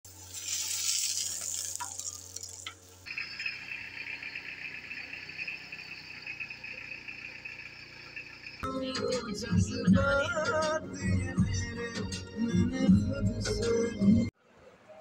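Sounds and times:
flatbread sizzling on a pan: 0:00.1 - 0:03.1
high-pitched droning: 0:00.2 - 0:08.6.

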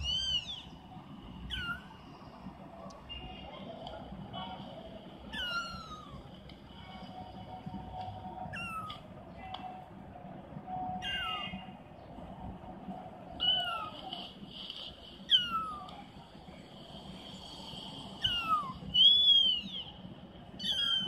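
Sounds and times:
kitten meowing: 0:00.0 - 0:00.6, 0:01.5 - 0:01.8, 0:05.3 - 0:06.2, 0:08.5 - 0:09.0, 0:11.0 - 0:11.6, 0:15.3 - 0:15.9, 0:18.2 - 0:19.7, 0:20.6 - 0:21.0.

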